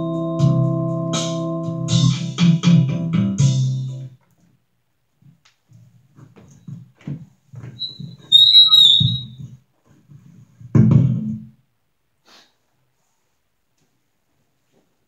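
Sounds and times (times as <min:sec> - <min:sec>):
short high squeak: 0:07.8 - 0:09.4.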